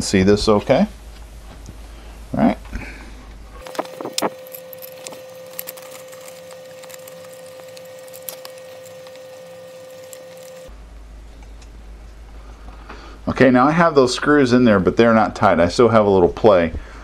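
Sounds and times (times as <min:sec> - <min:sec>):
faint steady hum: 0:00.0 - 0:14.1
metal parts clinking: 0:03.6 - 0:09.2.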